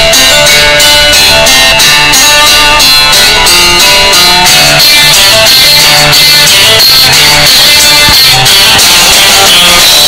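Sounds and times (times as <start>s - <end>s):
guitar-led music: 0.0s - 7.5s.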